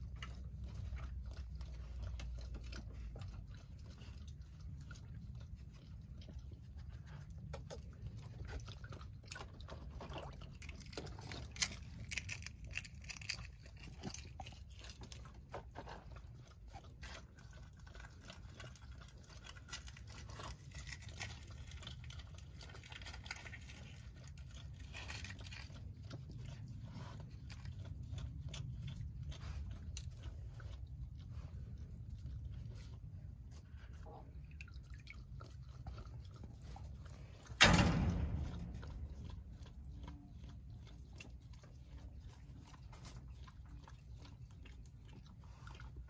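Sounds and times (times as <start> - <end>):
steady low rumble: 21.3 - 43.9.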